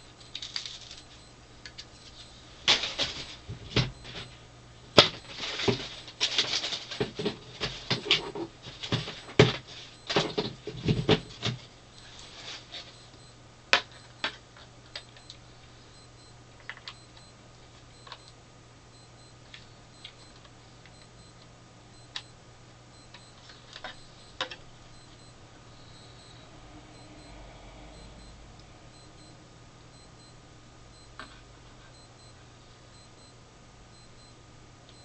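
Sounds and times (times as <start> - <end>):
faint low hum: 0.0 - 35.0
knocks and rustles of unpacking: 5.0 - 11.7.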